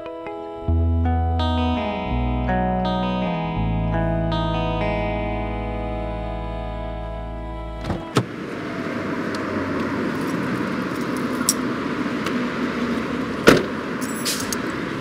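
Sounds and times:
road and street noise: 0.0 - 15.0
car door slamming: 7.8 - 8.4, 13.4 - 13.8.

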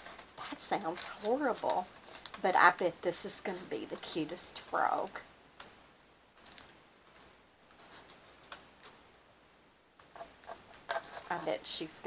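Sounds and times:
small clicks and ticks: 0.0 - 2.8, 5.6 - 9.2.

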